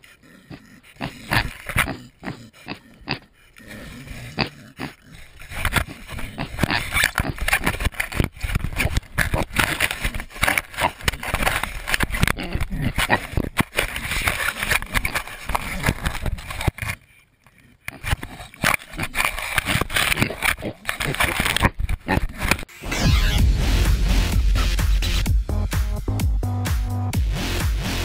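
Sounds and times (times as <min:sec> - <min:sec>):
pigs snuffling: 0:00.0 - 0:22.7
scraping and knocking on camera: 0:05.4 - 0:17.1.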